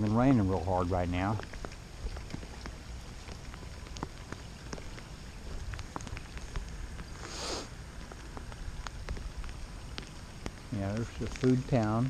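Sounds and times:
raindrops ticking: 0.0 - 12.0
short hiss: 7.1 - 7.8.

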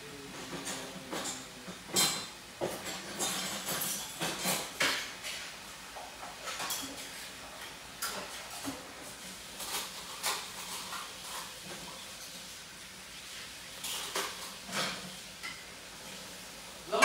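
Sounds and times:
meat sizzling in a skillet: 4.0 - 17.0.

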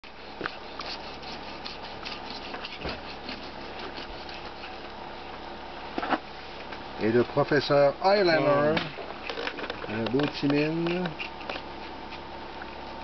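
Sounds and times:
knife cutting fish bones crackling: 0.3 - 5.0, 10.2 - 12.3.

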